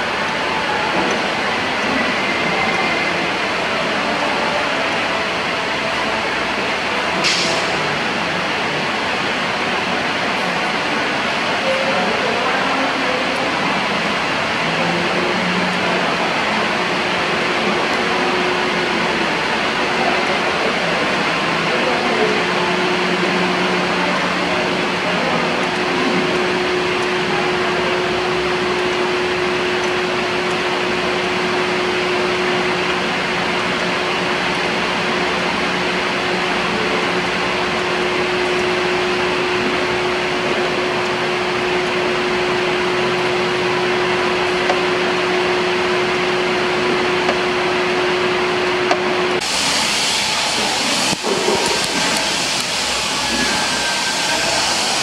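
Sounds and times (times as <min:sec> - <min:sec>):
machine whirring: 0:00.0 - 0:55.0
bright hiss: 0:49.4 - 0:55.0.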